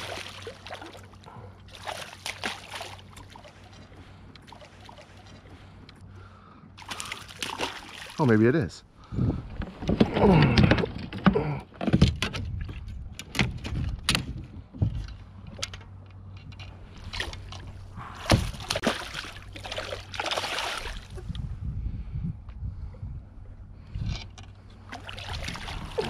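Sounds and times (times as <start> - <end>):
water splashing: 0.0 - 5.8, 6.8 - 8.4, 17.0 - 21.2, 24.8 - 26.0.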